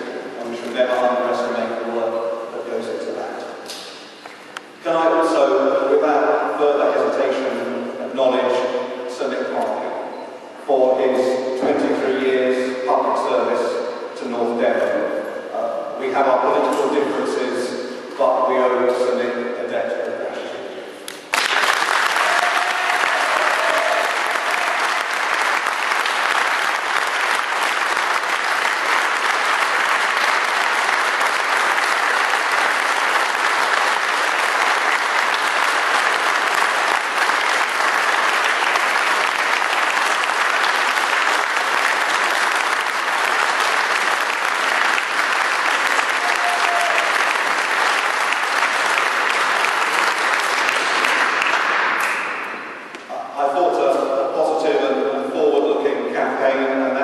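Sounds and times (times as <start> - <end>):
crowd applauding: 21.3 - 52.8.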